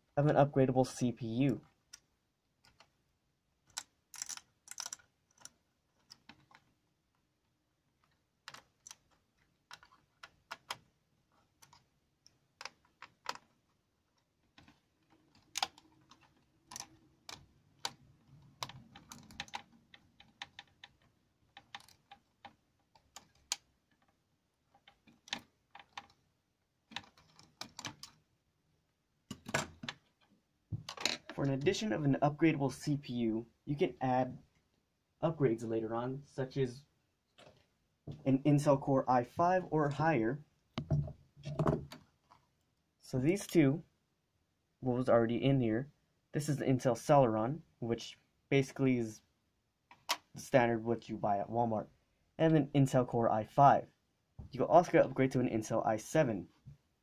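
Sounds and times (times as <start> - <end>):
small metal parts handled: 3.6 - 6.7.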